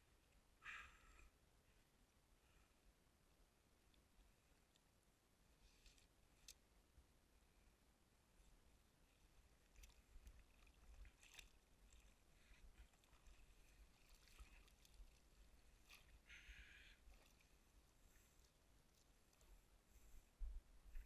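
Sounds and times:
cast net clicks and rustles: 5.6s - 6.6s, 9.5s - 19.6s.

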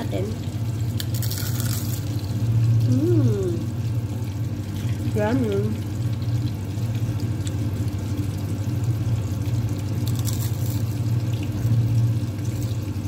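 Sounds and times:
crisp crunch of a bite: 1.0s - 2.1s, 10.0s - 10.9s.

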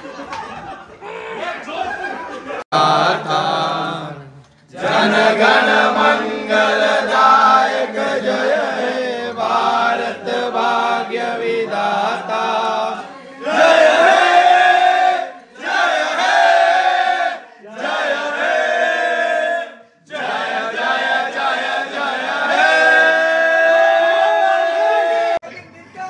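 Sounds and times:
group chanting in unison: 2.7s - 25.4s.

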